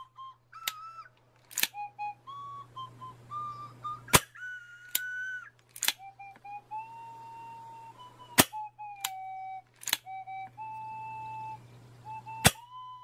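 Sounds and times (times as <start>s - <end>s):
music with whistled melody: 0.0s - 13.0s
gas revolver clicks and snaps: 1.4s - 1.8s, 5.7s - 6.0s, 9.8s - 10.1s.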